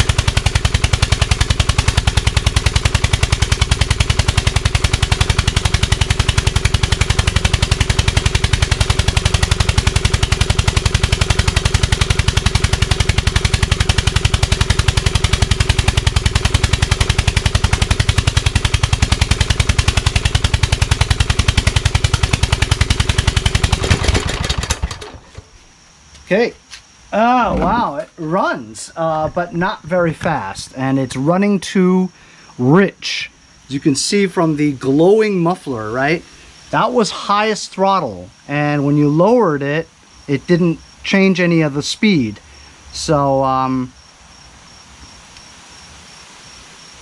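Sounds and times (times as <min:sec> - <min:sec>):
lawn tractor engine running: 0:00.0 - 0:25.7, 0:27.2 - 0:30.9.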